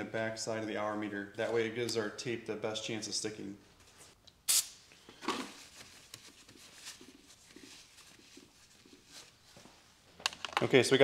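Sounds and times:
aerosol can spritz: 4.5 - 4.8.

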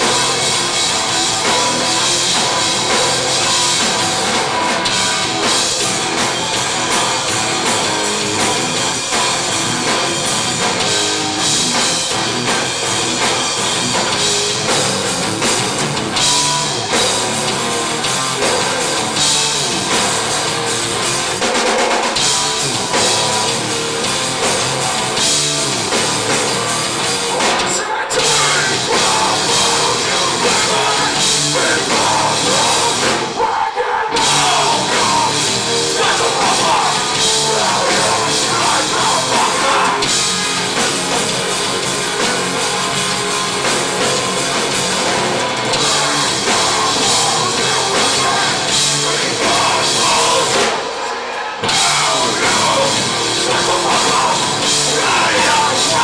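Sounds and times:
heavy metal band playing live: 0.0 - 56.0.

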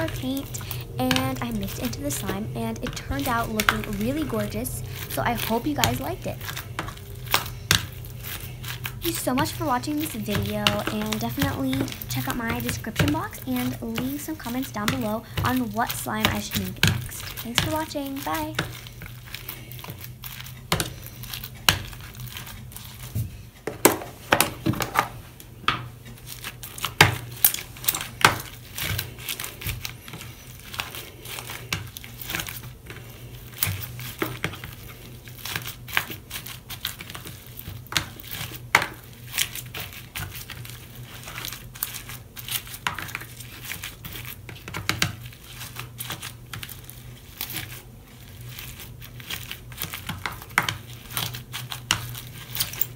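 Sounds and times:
slime crackling and popping: 0.0 - 23.2, 26.2 - 52.9
steady low hum: 0.0 - 52.9.

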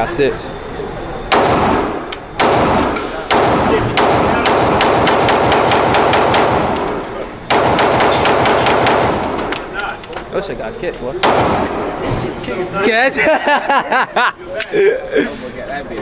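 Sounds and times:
pistol shots echoing indoors: 1.3 - 9.6, 11.2 - 12.0.

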